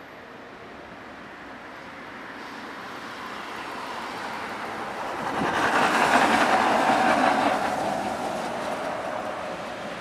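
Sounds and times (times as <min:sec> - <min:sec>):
tram approaching: 0:00.0 - 0:10.0
truck rolling by: 0:05.1 - 0:10.0.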